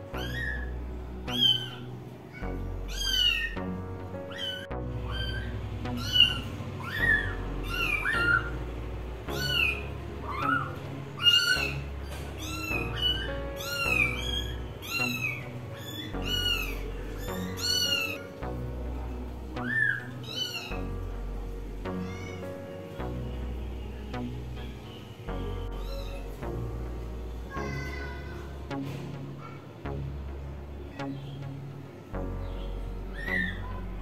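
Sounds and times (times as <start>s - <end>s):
background music with bass: 0.0s - 34.0s
kittens mewing: 0.1s - 8.6s, 9.3s - 18.5s.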